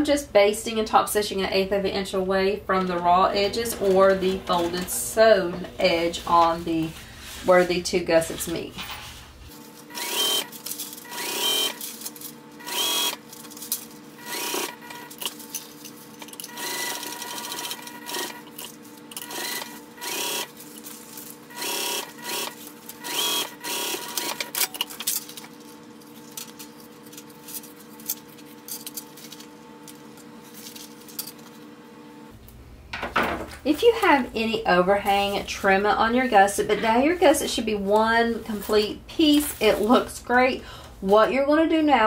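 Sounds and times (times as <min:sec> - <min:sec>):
sewing machine running: 0:09.9 - 0:11.9, 0:12.6 - 0:13.2, 0:14.2 - 0:15.3, 0:16.4 - 0:20.6, 0:21.5 - 0:24.8.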